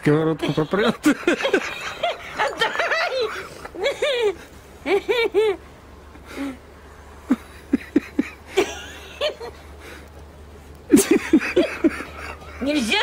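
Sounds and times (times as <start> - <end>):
person laughing: 0.4 - 5.6, 7.3 - 10.0, 10.9 - 12.7.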